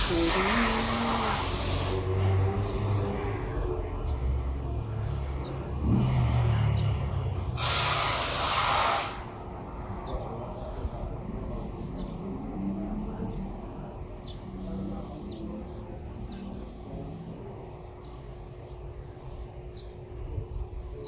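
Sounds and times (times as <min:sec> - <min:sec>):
sudden loud hiss: 0:00.0 - 0:02.2, 0:07.6 - 0:09.4
steady low rumble: 0:09.2 - 0:21.0.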